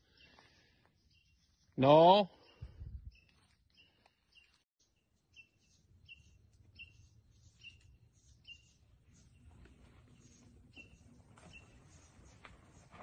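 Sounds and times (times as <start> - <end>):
faint bird chirping: 0.0 - 13.0
low wind rumble: 2.6 - 3.2.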